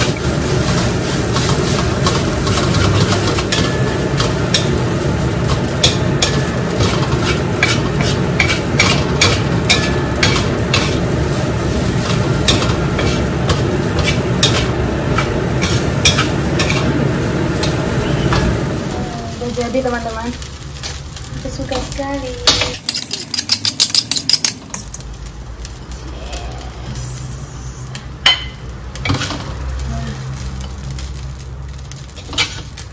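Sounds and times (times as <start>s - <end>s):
metal spatula scraping a wok: 0.0s - 18.5s, 32.1s - 32.8s
rice sizzling in a wok: 0.0s - 32.9s.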